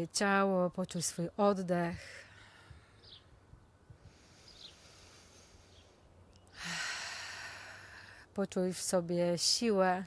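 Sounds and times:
faint bird chirps: 0:02.3 - 0:03.4, 0:04.4 - 0:04.9.

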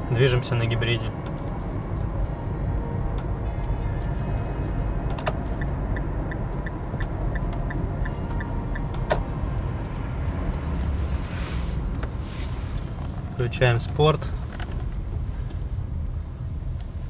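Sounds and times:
road and tyre rumble: 0:00.0 - 0:17.0
turn signal ticking: 0:00.6 - 0:11.1.

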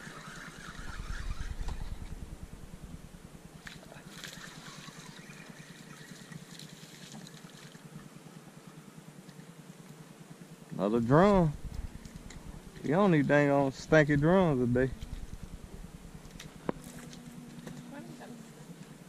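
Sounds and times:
low rumble on microphone: 0:00.0 - 0:03.6, 0:10.8 - 0:18.7
water splashing and trickling: 0:03.6 - 0:08.0.

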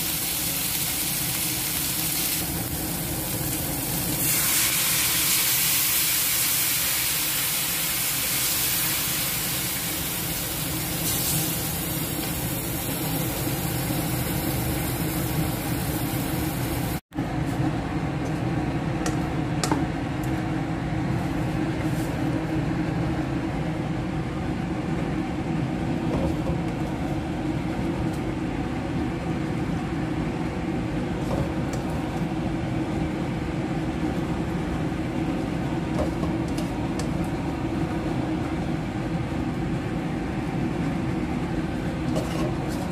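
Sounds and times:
wok sizzling and hissing: 0:00.0 - 0:17.6.

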